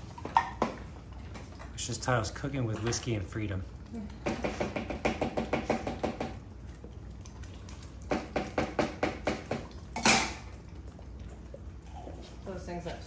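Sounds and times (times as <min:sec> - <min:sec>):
dog licking a spoon: 0:06.5 - 0:08.1.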